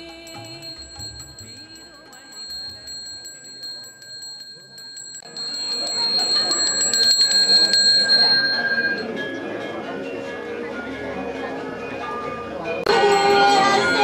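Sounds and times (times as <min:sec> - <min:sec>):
handbell ringing rapidly: 0:00.0 - 0:09.3.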